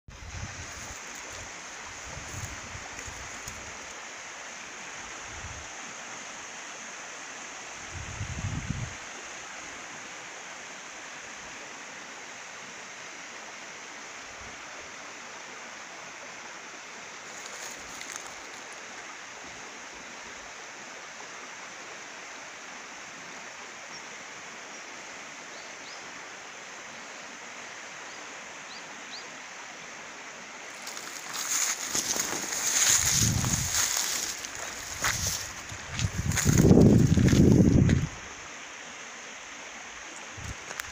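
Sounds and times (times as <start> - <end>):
shallow stream flowing over leaves: 0.1 - 25.5, 26.1 - 40.9
loud rustling: 30.8 - 37.8.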